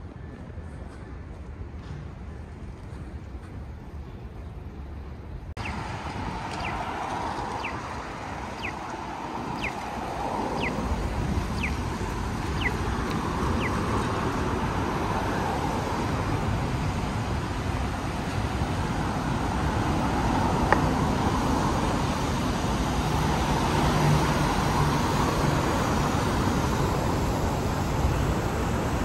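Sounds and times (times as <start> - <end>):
city traffic: 0.0 - 29.0
crossing signal chirping: 6.5 - 13.8.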